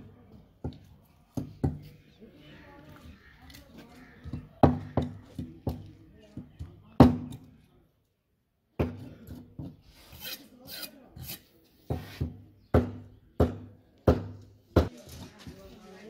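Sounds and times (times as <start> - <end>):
scraping and rasping: 9.8 - 12.2.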